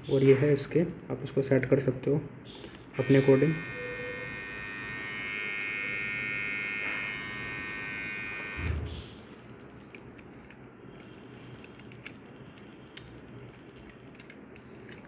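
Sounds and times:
beard trimmer buzzing: 3.0 - 8.9
trimmer switch-off thump: 8.5 - 8.9.

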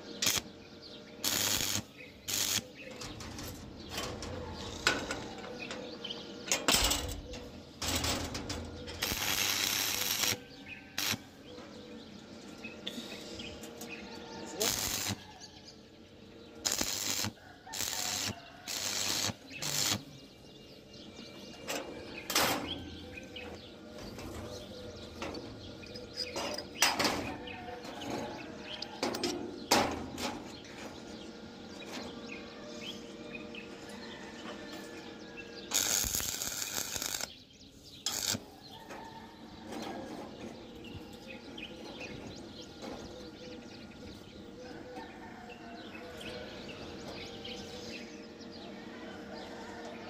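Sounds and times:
welding arc crackling: 0.1 - 0.5, 1.2 - 3.6, 7.9 - 11.2, 14.6 - 15.2, 16.6 - 20.1, 35.7 - 37.3, 38.0 - 38.5.

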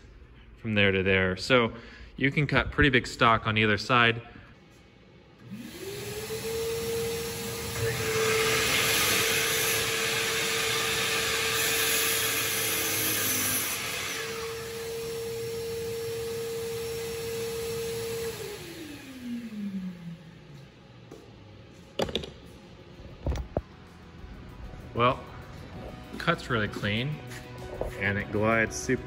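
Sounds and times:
miter saw motor whine: 5.4 - 20.4
saw blade cutting wood: 7.2 - 15.1.

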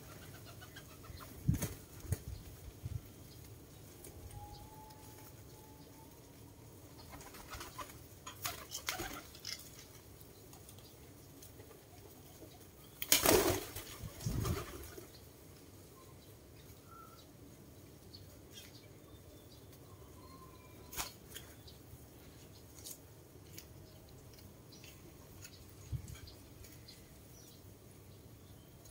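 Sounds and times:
pigeon wings flapping: 7.1 - 9.3, 13.0 - 15.1.

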